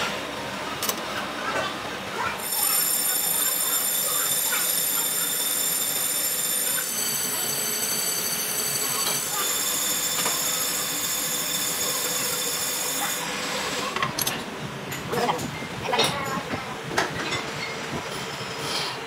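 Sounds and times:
high-pitched cutting squeal: 0:02.4 - 0:13.4
lathe running: 0:02.4 - 0:14.0.

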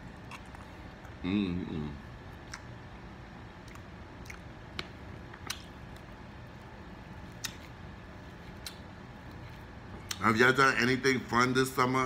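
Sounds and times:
chewing: 0:00.0 - 0:01.2, 0:02.3 - 0:02.8, 0:03.6 - 0:04.5.

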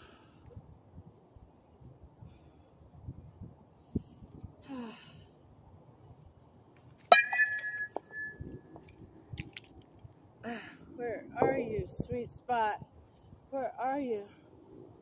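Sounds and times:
bat striking softball: 0:07.1 - 0:08.6.

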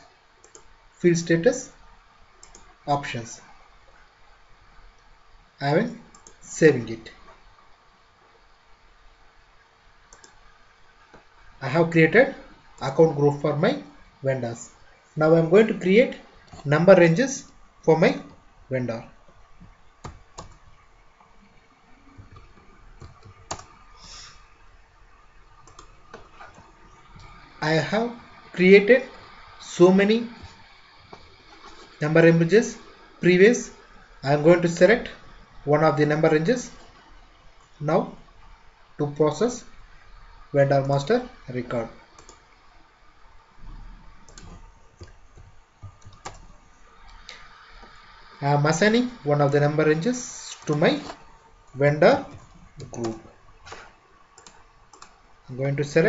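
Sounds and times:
faint low background noise: 0:00.0 - 0:56.0
low room hum: 0:00.0 - 0:56.0
soft hiss: 0:00.0 - 0:56.0
keyboard clicks: 0:00.4 - 0:00.7, 0:02.4 - 0:02.7, 0:10.1 - 0:10.4, 0:20.0 - 0:20.8, 0:22.2 - 0:23.8, 0:25.6 - 0:27.3, 0:42.2 - 0:42.4, 0:44.2 - 0:46.5, 0:52.1 - 0:55.2.

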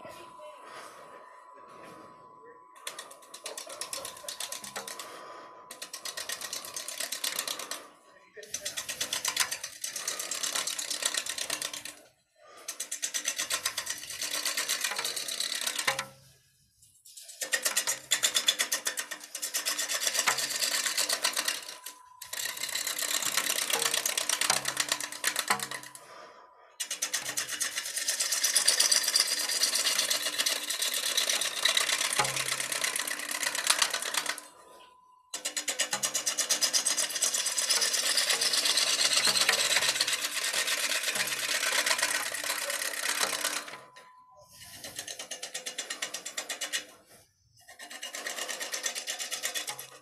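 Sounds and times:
gouge cutting wood on lathe: 0:02.8 - 0:16.2, 0:17.4 - 0:34.8, 0:35.4 - 0:44.0, 0:44.6 - 0:50.0.

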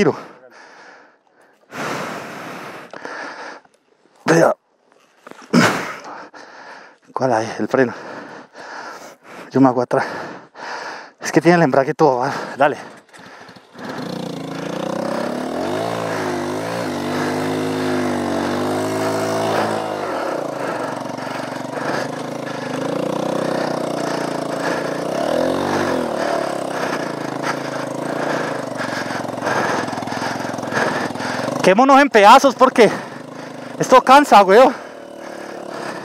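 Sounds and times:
motorcycle engine revving hard: 0:12.4 - 0:36.0.

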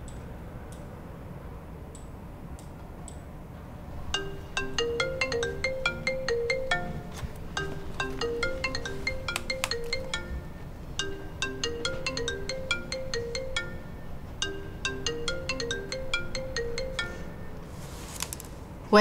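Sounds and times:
phone ringtone melody: 0:04.2 - 0:17.7.

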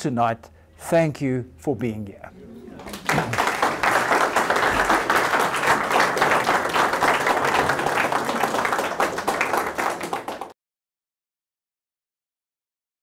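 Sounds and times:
audience applauding: 0:02.6 - 0:10.6.

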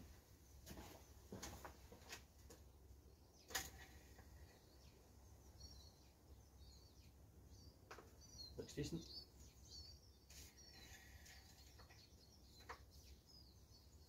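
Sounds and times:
faint bird chirps: 0:03.1 - 0:14.0.

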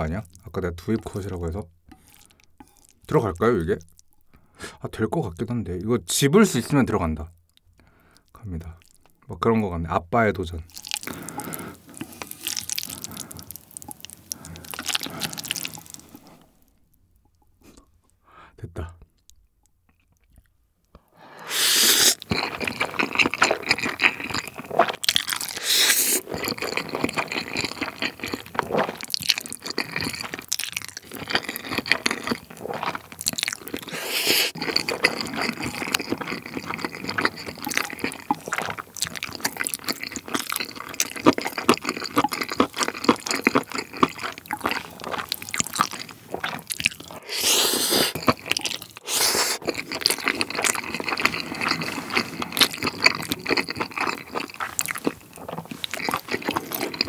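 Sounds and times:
chewing with mouth full: 0:10.6 - 0:18.2, 0:21.5 - 0:57.0
slurping noodles: 0:10.8 - 0:16.4, 0:21.4 - 0:57.0.

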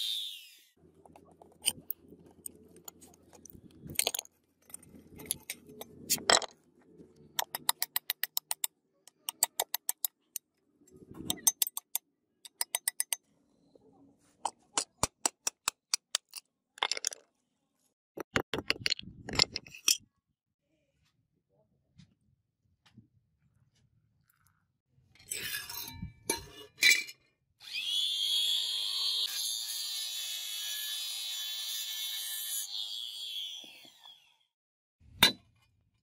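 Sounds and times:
chisel striking metal: 0:11.2 - 0:13.2, 0:14.4 - 0:16.4, 0:35.2 - 0:35.5.

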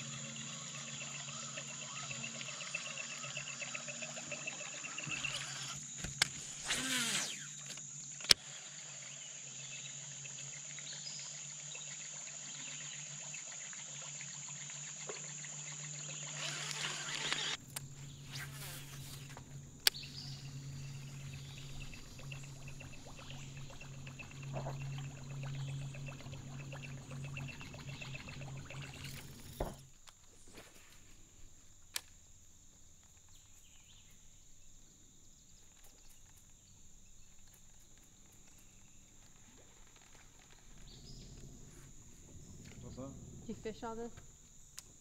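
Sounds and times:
insects droning: 0:00.0 - 0:45.0
low steady hum: 0:14.7 - 0:45.0
sharp clicks: 0:16.4 - 0:18.1, 0:18.9 - 0:22.9.

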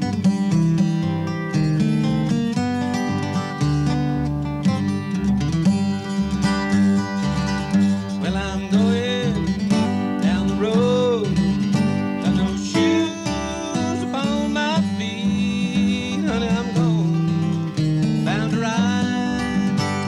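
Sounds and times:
acoustic guitar strumming: 0:00.0 - 0:20.0
upright bass playing: 0:00.0 - 0:20.0
man singing: 0:07.9 - 0:20.0.

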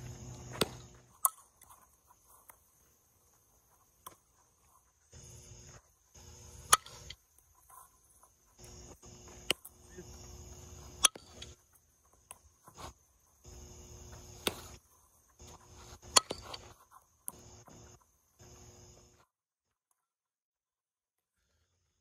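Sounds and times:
crickets chirring: 0:00.0 - 0:19.3
softball cracks: 0:00.2 - 0:01.8, 0:08.6 - 0:11.6, 0:13.6 - 0:14.8.

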